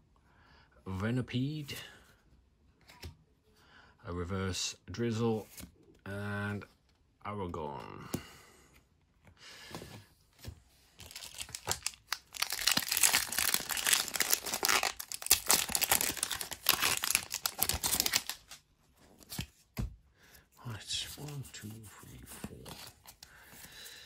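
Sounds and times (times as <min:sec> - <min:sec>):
foil wrapper tearing and crinkling: 0:11.0 - 0:18.6.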